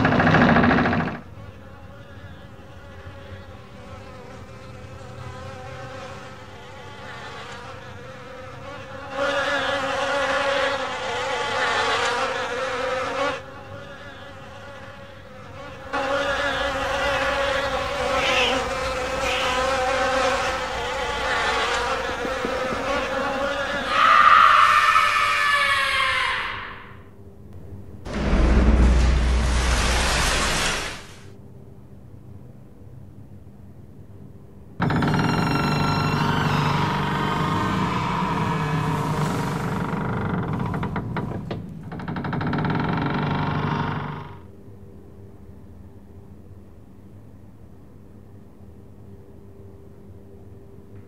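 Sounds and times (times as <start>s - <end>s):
fly buzzing: 0.0s - 25.0s
loud low rumble: 27.6s - 31.0s.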